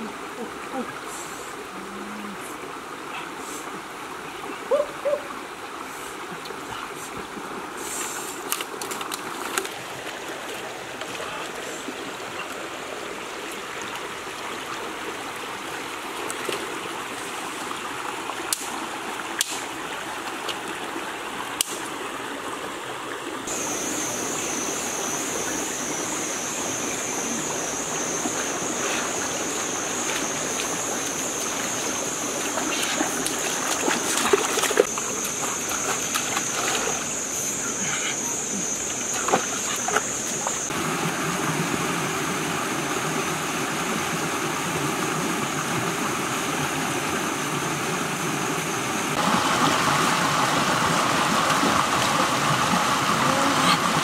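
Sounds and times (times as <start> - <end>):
water rushing over rocks: 0.0 - 54.0
small splashes and clicks: 8.2 - 11.3, 32.4 - 37.0.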